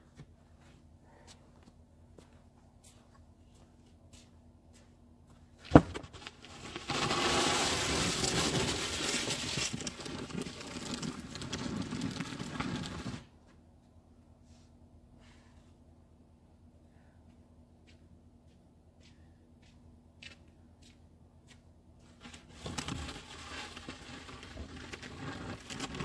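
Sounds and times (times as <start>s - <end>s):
snow shovel scraping pavement: 5.8s - 13.3s, 22.2s - 26.0s.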